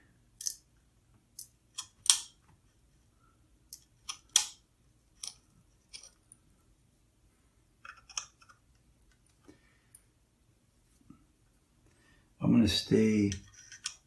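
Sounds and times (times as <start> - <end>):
metal tool clicking and scraping: 13.3 - 14.0.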